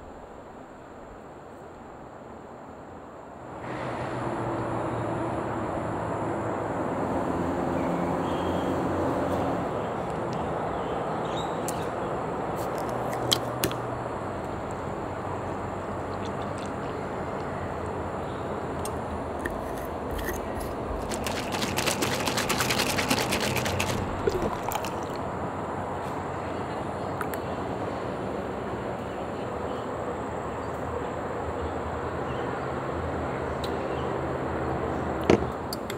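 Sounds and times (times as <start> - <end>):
steady background noise: 0.0 - 35.9
bottle rattling and sloshing: 19.4 - 25.2.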